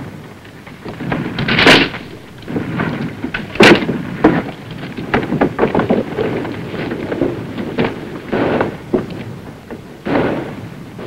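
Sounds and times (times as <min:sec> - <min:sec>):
knocks and crackles: 0:00.0 - 0:11.0.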